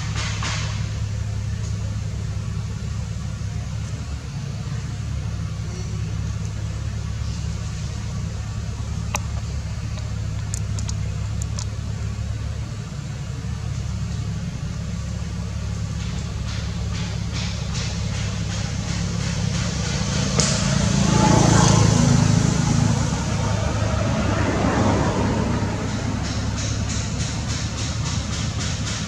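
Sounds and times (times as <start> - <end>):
low rumbling hum: 0.0 - 29.0.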